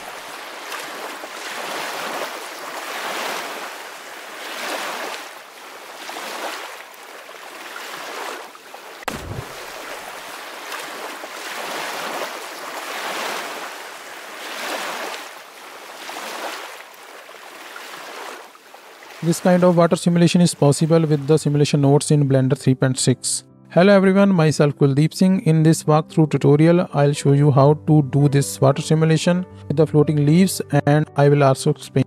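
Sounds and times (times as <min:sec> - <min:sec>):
waves washing: 0:00.0 - 0:21.6
low thump: 0:09.0 - 0:09.9.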